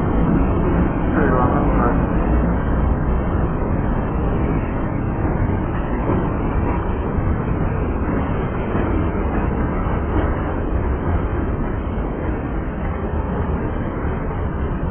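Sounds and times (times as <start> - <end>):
train wheels rumbling on rails: 0.0 - 14.9.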